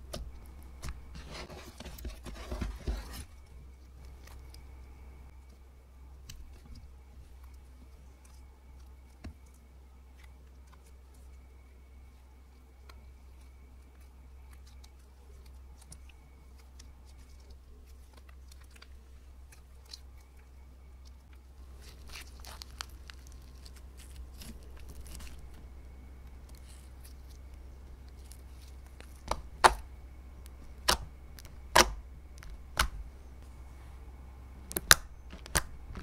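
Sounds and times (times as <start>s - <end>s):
slime squishing and crackling: 12.8s - 33.1s
sharp slime pops: 29.3s - 29.8s, 31.7s - 32.0s.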